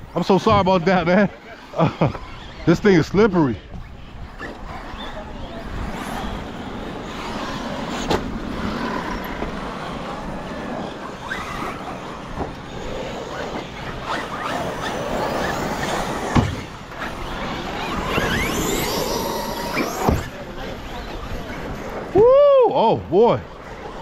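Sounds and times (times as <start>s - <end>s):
electric motors whining: 0.1s - 22.2s
tyres scrabbling on dirt: 5.8s - 20.5s
toy truck landing thud: 18.1s - 20.3s.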